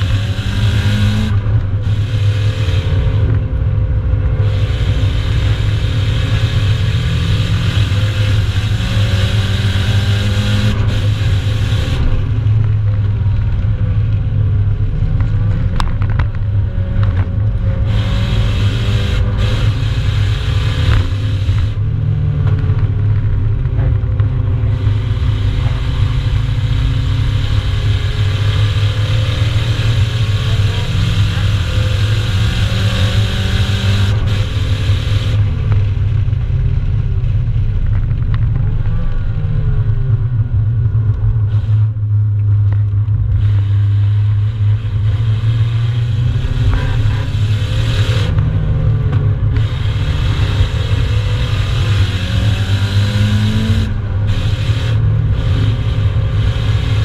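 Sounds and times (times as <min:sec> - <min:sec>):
car engine revving through gears: 0:00.0 - 0:36.4, 0:38.1 - 0:57.0.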